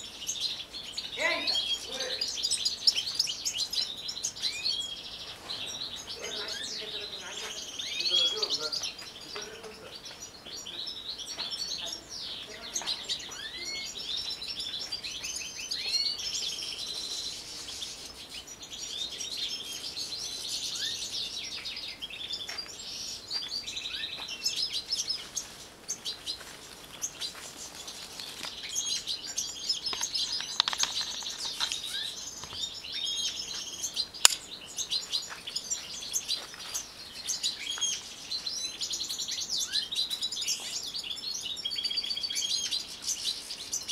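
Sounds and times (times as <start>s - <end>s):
finches twittering: 0.0s - 43.9s
sharp click: 34.3s - 34.5s.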